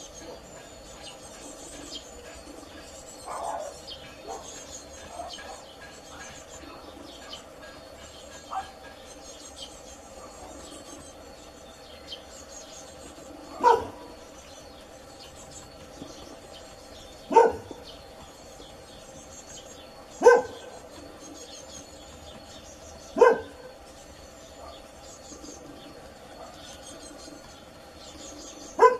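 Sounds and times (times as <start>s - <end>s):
dog barking: 3.3s - 5.7s, 8.5s - 8.8s, 13.6s - 14.1s, 17.3s - 17.8s, 20.2s - 20.8s, 23.2s - 23.8s, 26.4s - 26.7s.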